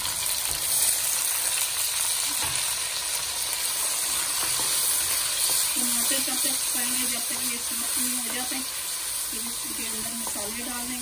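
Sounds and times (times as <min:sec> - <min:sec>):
tomatoes sizzling in hot oil: 0:00.0 - 0:11.0.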